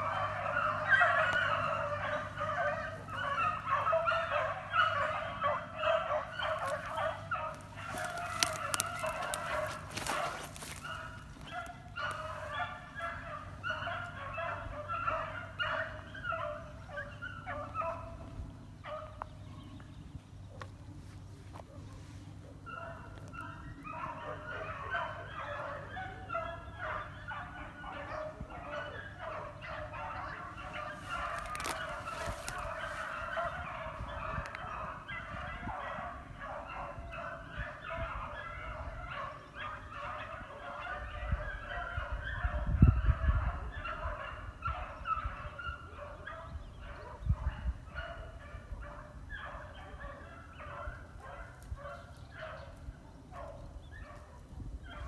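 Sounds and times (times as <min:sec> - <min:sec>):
beagles baying and yelping: 0:00.0 - 0:55.0.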